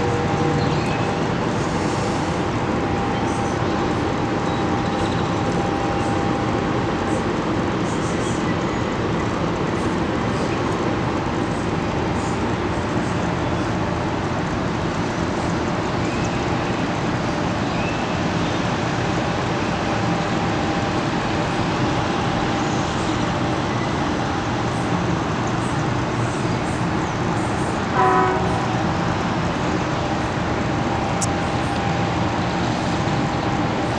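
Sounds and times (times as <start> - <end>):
city traffic noise: 0.0 - 33.9
car horn toot: 28.0 - 28.6.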